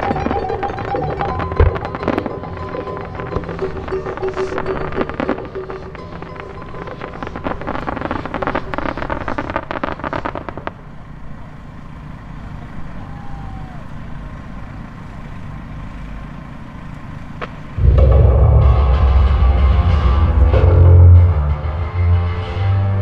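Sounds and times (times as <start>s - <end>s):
dramatic music with deep bass: 0.0s - 8.5s, 17.8s - 23.0s
fireworks crackling: 0.0s - 22.0s.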